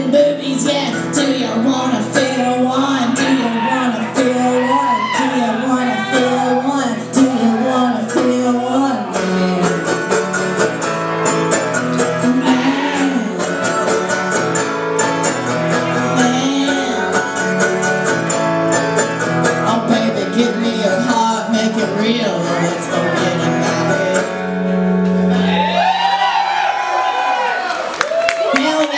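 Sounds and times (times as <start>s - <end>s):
woman singing: 0.0s - 10.2s, 12.0s - 13.8s, 15.8s - 17.4s, 19.6s - 24.4s
guitar and mandolin strumming: 0.0s - 25.6s.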